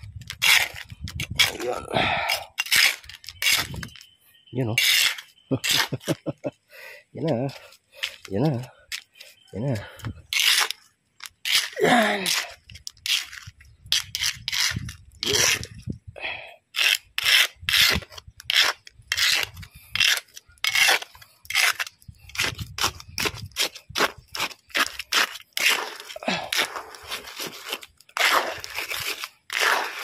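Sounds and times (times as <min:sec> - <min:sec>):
trowel scraping wet concrete: 0:00.3 - 0:04.0, 0:04.7 - 0:06.2, 0:10.3 - 0:15.7, 0:16.7 - 0:30.0.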